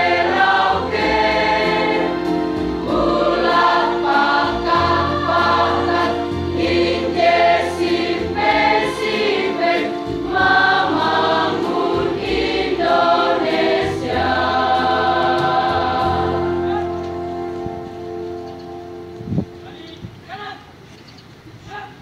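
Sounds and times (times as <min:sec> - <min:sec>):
choir singing: 0:00.0 - 0:17.4.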